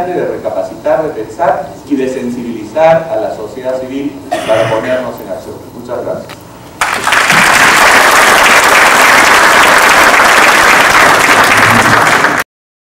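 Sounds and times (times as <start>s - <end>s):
crowd applauding: 6.8s - 12.5s.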